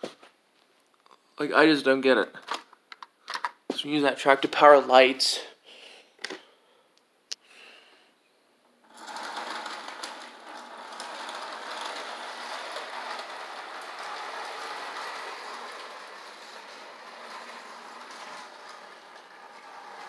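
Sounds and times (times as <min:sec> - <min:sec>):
model train motor whir: 0:08.8 - 0:20.0
wheels clattering on rails: 0:08.9 - 0:20.0.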